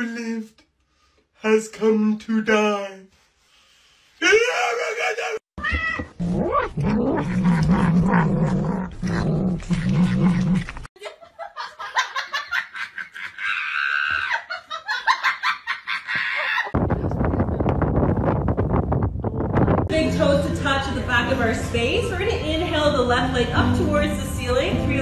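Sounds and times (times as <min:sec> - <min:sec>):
pet growling: 0:06.1 - 0:10.9.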